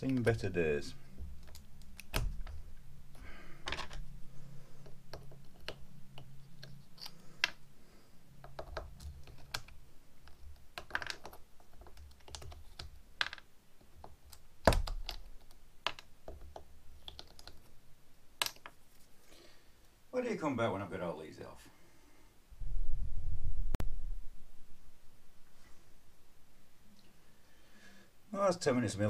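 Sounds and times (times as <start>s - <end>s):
plastic bricks clicking apart: 3.6s - 4.0s, 8.4s - 17.7s, 18.4s - 18.8s.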